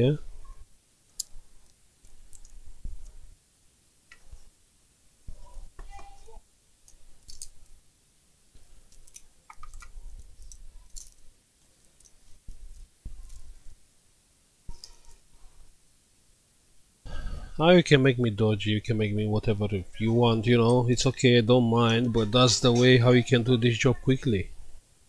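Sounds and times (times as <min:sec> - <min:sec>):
small tools clicking: 0:06.9 - 0:07.6.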